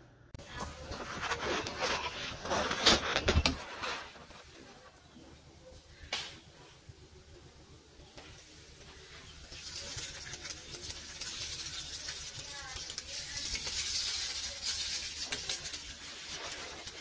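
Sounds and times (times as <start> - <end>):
meat sizzling in hot oil: 8.6 - 17.0.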